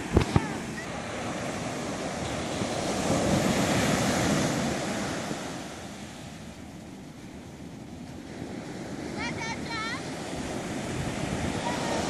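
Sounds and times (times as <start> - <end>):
wave breaking on beach: 0.0 - 6.5, 8.0 - 12.0.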